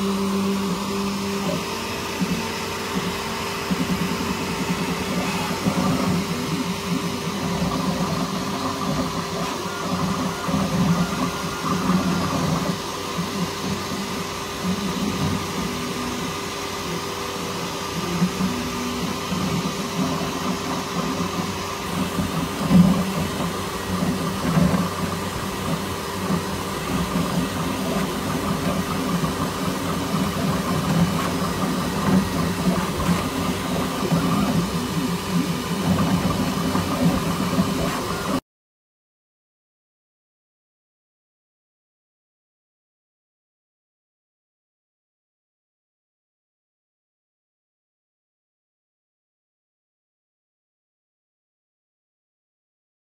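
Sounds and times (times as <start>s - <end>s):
fan humming: 0.0s - 38.4s
stepper motors whirring: 0.0s - 38.4s.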